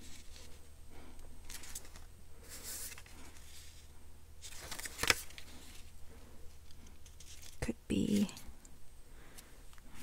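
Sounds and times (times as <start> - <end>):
paper rustling and sliding: 0.0 - 0.6, 1.4 - 6.0, 6.6 - 8.2.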